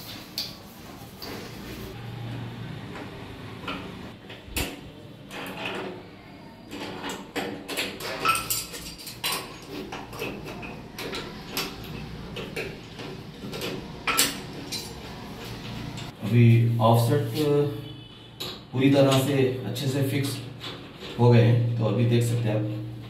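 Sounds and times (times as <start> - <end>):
metal plumbing fittings clinking: 6.7 - 15.0.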